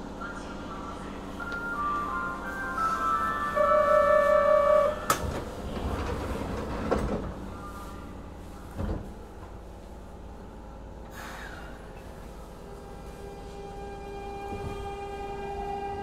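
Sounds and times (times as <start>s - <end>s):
train car hum: 0.0s - 16.0s
sliding doors shutting: 2.8s - 7.8s
clunks: 5.0s - 7.6s.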